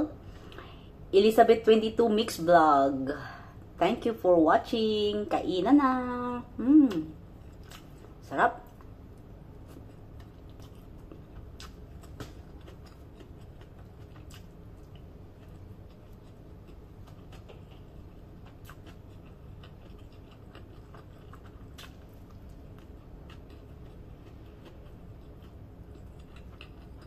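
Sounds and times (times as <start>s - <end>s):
low room hum: 0.0s - 27.0s
quiet chewing: 6.9s - 8.1s, 9.6s - 27.0s.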